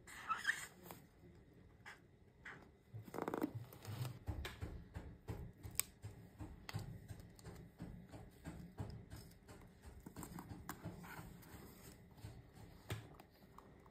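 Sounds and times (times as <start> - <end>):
paper handling rustles: 5.6 - 13.9.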